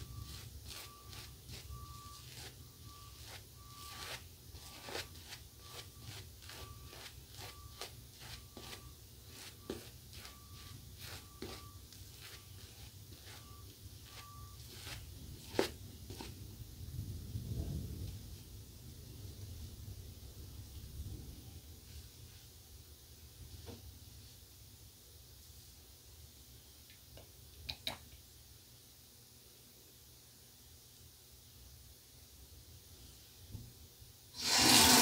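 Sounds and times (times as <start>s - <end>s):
razor scraping stubble: 34.4s - 35.0s.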